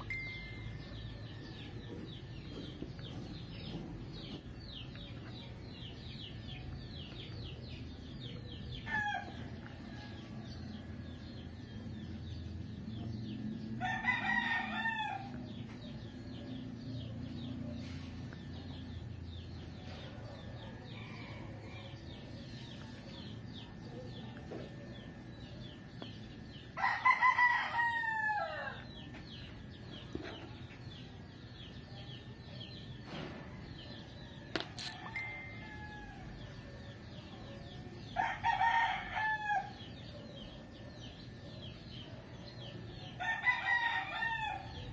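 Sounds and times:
low steady background noise: 0.0 - 44.9
small birds chirping: 0.0 - 44.9
rooster crowing: 13.8 - 15.4, 26.8 - 28.9, 34.9 - 36.5, 38.2 - 39.9, 43.2 - 44.9.

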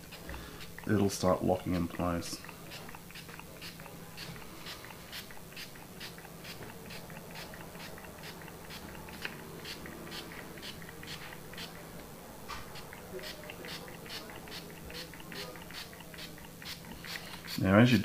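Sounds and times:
spray bottle squirts: 2.7 - 11.8, 12.6 - 17.6.

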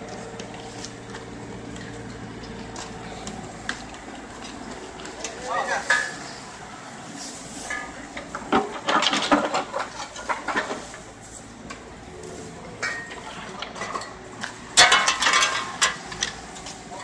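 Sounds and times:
excavator bucket scraping and clanking: 0.0 - 17.0
excavator engine running: 0.0 - 17.0.

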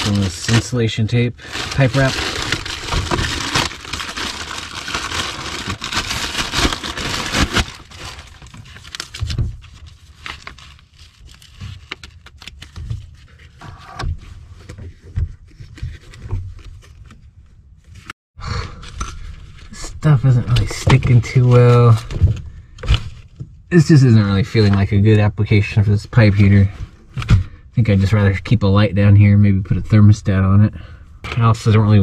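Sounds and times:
plastic packaging crinkling: 0.0 - 12.8.

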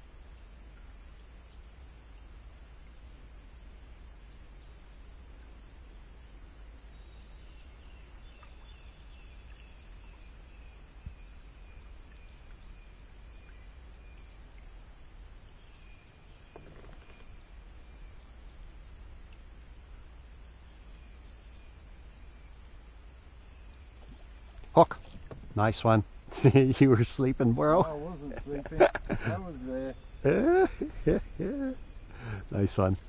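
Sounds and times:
cicadas shrilling: 0.0 - 33.0.

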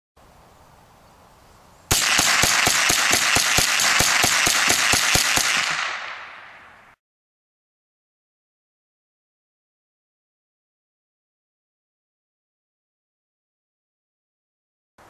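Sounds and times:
gunshot echo: 1.9 - 7.0
rifle shots: 1.9 - 7.0.

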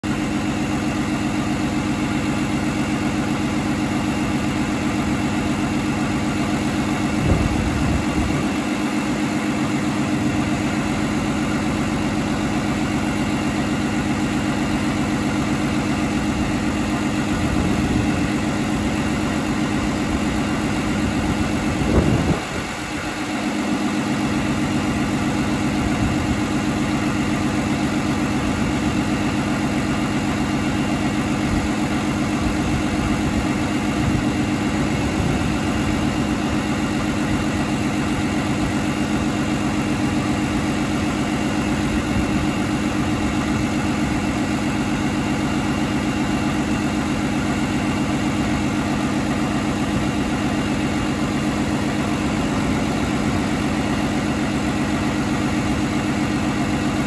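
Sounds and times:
diesel engine idling and revving: 0.0 - 57.0.

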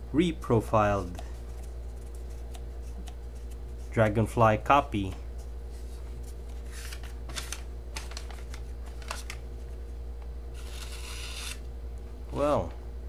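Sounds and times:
knife slicing paper: 10.6 - 11.6.

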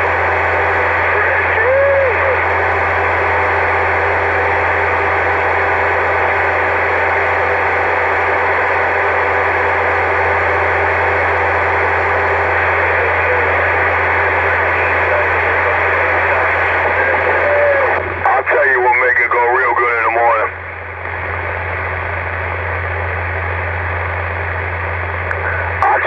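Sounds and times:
radio static hiss: 0.0 - 4.5, 12.2 - 23.4, 24.0 - 26.0
constant low hum: 0.0 - 26.0.

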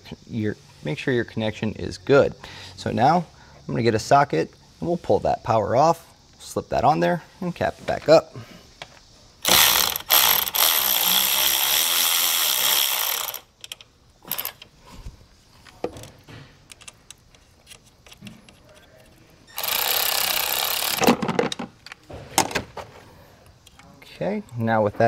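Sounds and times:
cordless ratchet spinning: 9.4 - 14.6, 19.5 - 21.2.

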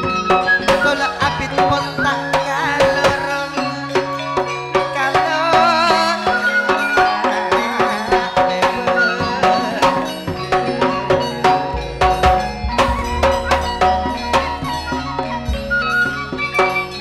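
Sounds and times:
quick drum rhythm: 0.0 - 17.0
wavering melody line: 0.0 - 17.0
deep bass: 11.7 - 17.0.

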